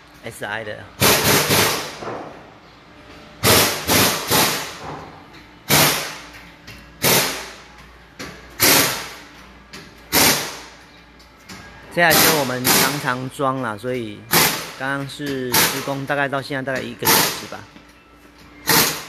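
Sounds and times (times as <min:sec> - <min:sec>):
loud metal bangs: 0:01.0 - 0:02.4, 0:03.4 - 0:05.0, 0:05.7 - 0:06.2, 0:12.1 - 0:13.1.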